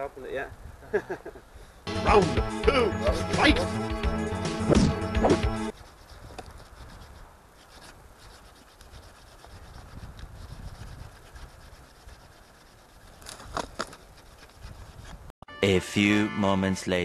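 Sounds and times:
hand saw rasping through log: 5.7s - 15.2s.

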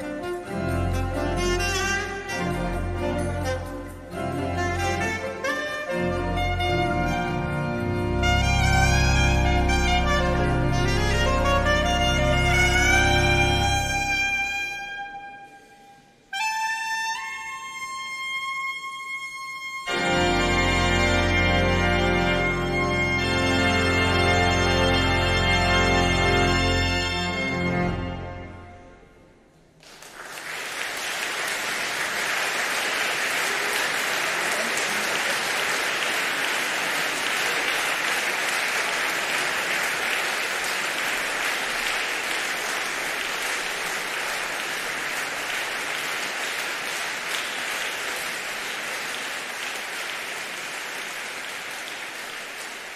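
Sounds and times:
concert music: 0.0s - 29.5s
audience applauding: 29.8s - 52.9s.

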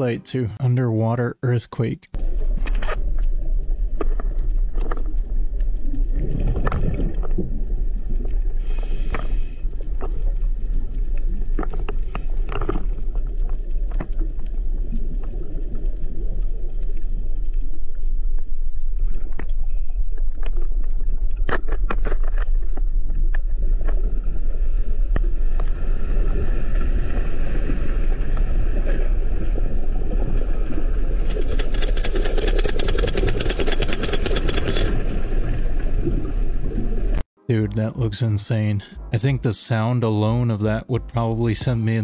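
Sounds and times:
deep underwater earthquake rumble: 2.2s - 37.2s
dense fast crackle: 30.2s - 36.0s.

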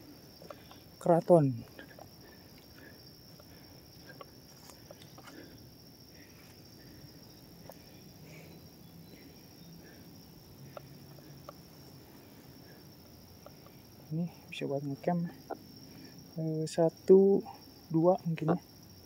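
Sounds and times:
insects droning: 0.0s - 19.0s
faint clicks and rustles: 0.4s - 13.9s.

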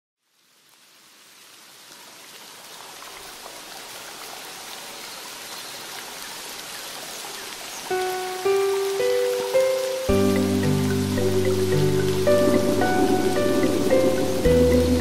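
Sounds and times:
steady rainfall: 0.2s - 15.0s
instrumental gamelan music: 10.1s - 15.0s.

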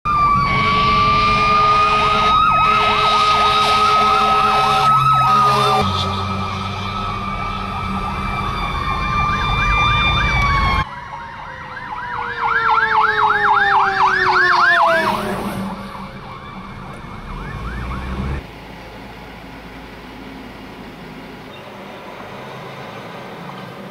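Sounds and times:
siren tone falling in pitch: 0.1s - 18.4s
siren yelp: 0.1s - 18.4s
fire truck siren wail: 0.1s - 18.7s
engine and road rumble: 0.1s - 23.9s.

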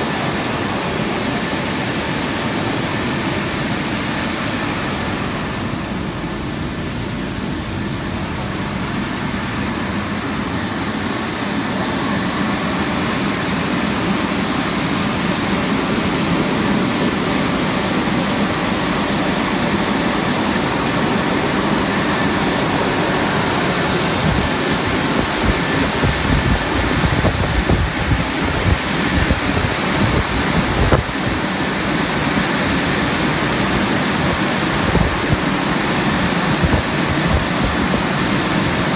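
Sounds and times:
car wash brushes and spray rushing: 0.0s - 38.9s.

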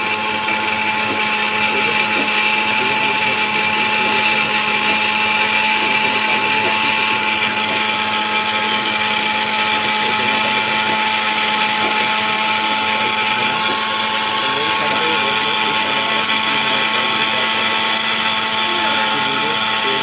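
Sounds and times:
mixer grinder running: 0.0s - 20.0s.

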